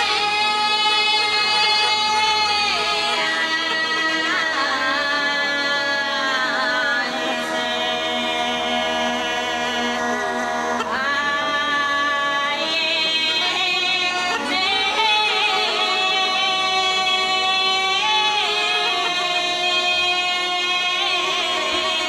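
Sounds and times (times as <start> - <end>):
bagpipes drone: 0.0 - 22.0
woman singing folk song: 10.9 - 22.0.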